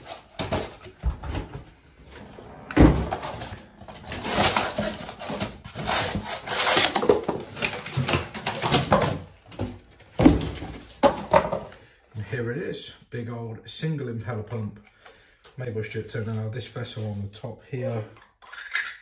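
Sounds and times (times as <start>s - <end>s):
cardboard rustling and scraping: 0.0s - 11.7s
heavy thump: 2.6s - 3.4s.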